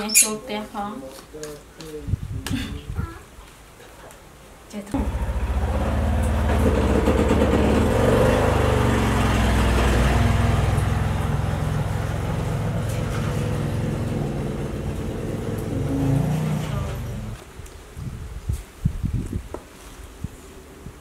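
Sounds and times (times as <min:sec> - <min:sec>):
engine humming: 0:05.0 - 0:17.4.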